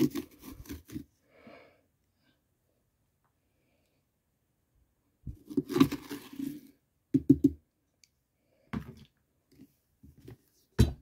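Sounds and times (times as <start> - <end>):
scraping pumpkin: 0.0 - 1.1, 5.3 - 6.8.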